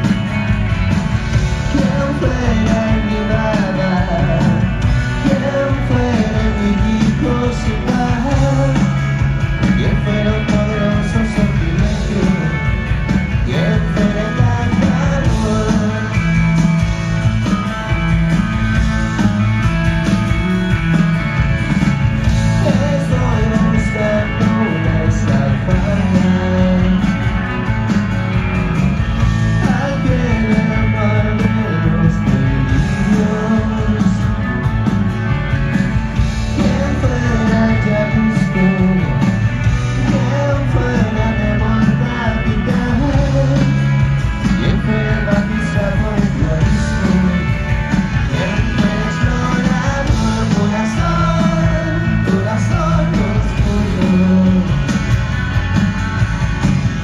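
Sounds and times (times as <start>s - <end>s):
live rock band playing: 0.0s - 57.0s
stadium crowd: 0.0s - 57.0s
person singing: 1.6s - 9.0s, 9.6s - 16.5s, 22.6s - 27.4s, 29.6s - 34.4s, 36.5s - 55.0s.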